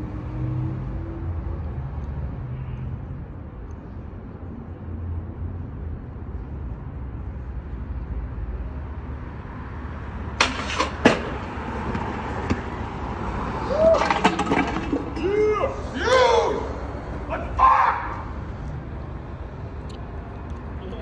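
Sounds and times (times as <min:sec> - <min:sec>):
city traffic rumble: 0:00.0 - 0:21.0
scooter slamming onto concrete: 0:10.4 - 0:12.7, 0:13.8 - 0:15.2.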